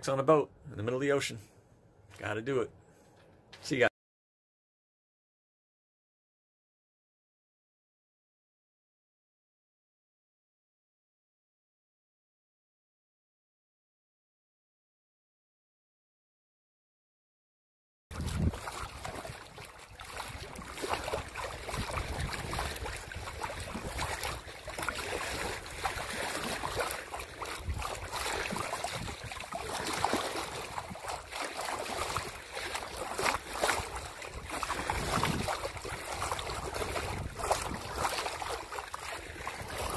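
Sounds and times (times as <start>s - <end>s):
wind gusting on microphone: 18.1s - 19.6s, 20.2s - 31.1s, 34.4s - 38.2s
water splashing along boat hull: 18.1s - 39.9s.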